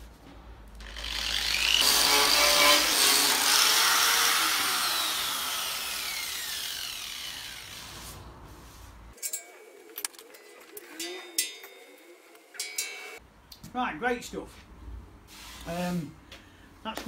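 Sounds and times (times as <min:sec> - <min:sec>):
angle grinder grinding steel: 0:00.8 - 0:08.0
grinder whine spinning down: 0:03.8 - 0:07.7.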